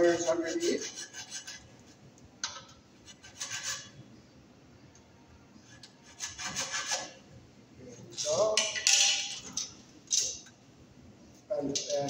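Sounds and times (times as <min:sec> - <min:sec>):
hacksaw rasping on metal: 0:00.1 - 0:01.6, 0:03.1 - 0:03.9.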